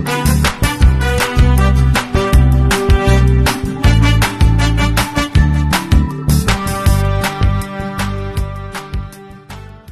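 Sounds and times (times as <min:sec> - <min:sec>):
heavy bass line: 0:00.0 - 0:09.2
upbeat background music: 0:00.0 - 0:09.9
steady drum beat: 0:00.1 - 0:07.6.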